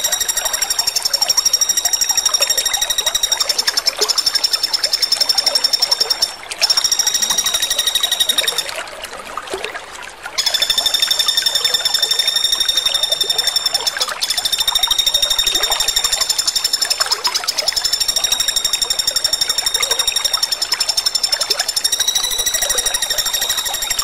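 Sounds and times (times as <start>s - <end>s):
woodpecker rattling trills: 0.0s - 8.8s, 10.4s - 24.0s.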